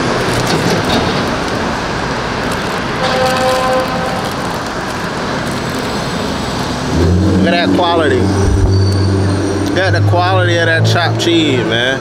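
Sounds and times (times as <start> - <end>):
city street traffic: 0.0 - 12.0
brief pitched tone: 8.4 - 9.6.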